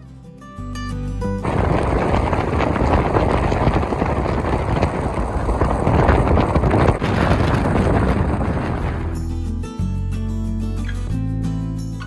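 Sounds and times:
car road noise at speed: 1.4s - 9.2s
wind buffeting microphone: 1.4s - 9.5s.

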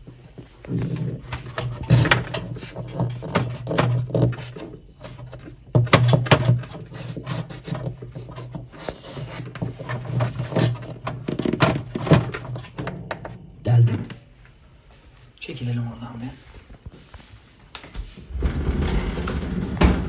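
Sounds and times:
screwdriver scraping through plastic: 0.7s - 12.9s.

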